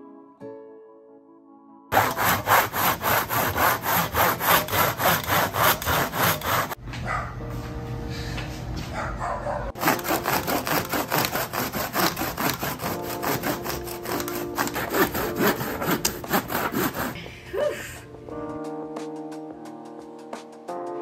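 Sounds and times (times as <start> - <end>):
handsaw cutting wood: 1.9 - 6.8, 9.8 - 17.2.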